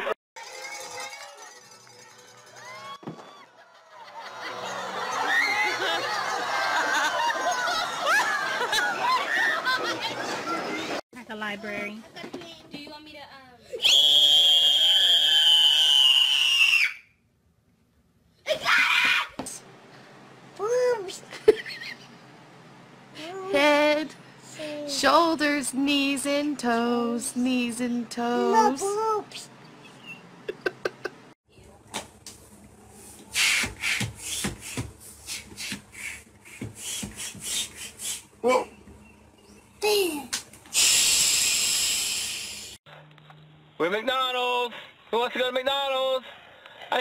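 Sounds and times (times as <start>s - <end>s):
child screaming: 18.5s - 19.4s.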